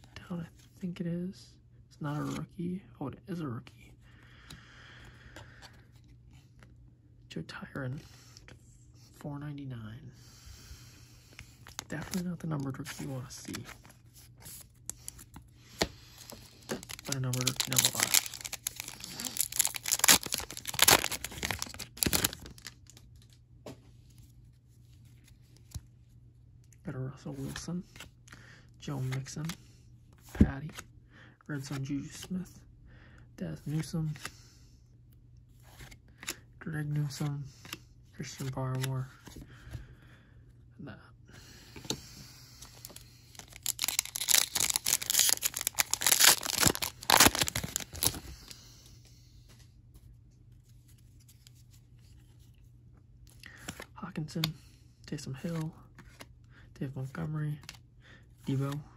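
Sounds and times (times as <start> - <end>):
foil wrapper crinkling and tearing: 16.2 - 23.4, 43.3 - 48.3.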